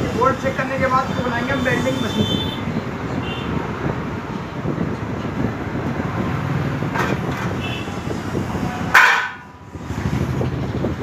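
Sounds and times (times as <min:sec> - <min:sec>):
sharp metallic knock: 0:08.9 - 0:09.5.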